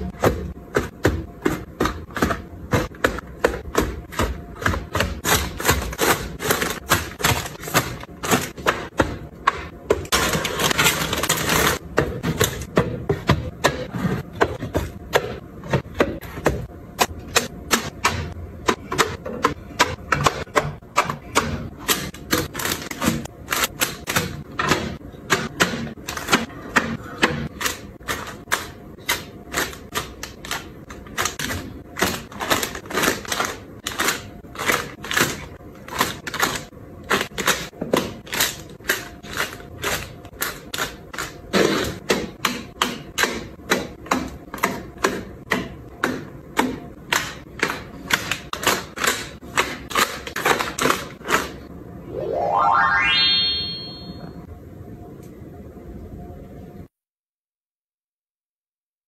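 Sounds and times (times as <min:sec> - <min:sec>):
items tapping on shelves: 0:00.0 - 0:51.6.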